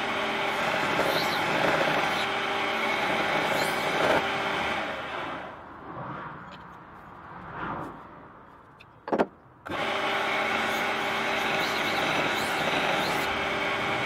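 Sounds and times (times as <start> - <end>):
belt sander sanding wood: 0.0 - 5.2, 9.7 - 14.0.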